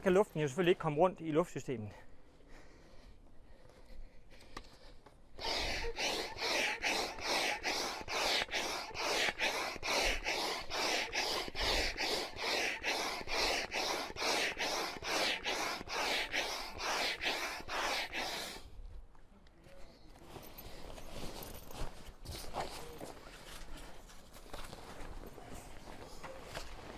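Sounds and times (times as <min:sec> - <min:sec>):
hand air pump rushing: 0:05.4 - 0:18.7.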